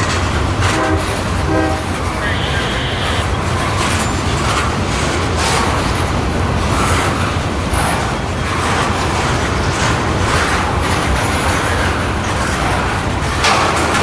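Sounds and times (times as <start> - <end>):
train wheels rumbling on rail: 0.0 - 14.0
wheels hissing and screeching: 1.4 - 10.7.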